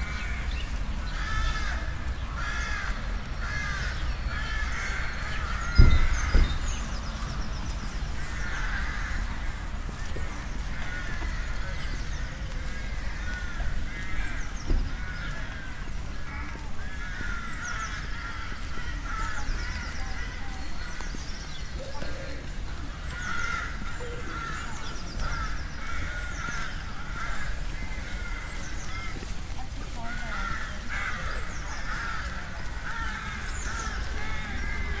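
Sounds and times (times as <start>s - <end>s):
crows cawing: 0.0s - 35.0s
songbird chirps: 0.0s - 35.0s.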